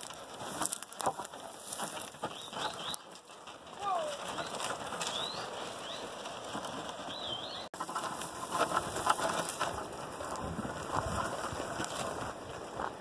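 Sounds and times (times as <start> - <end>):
hooves and dragged wood scraping: 0.0 - 13.0
steady rustling noise: 0.0 - 13.0
small birds chirping: 2.2 - 3.1, 3.8 - 6.2, 7.0 - 7.8.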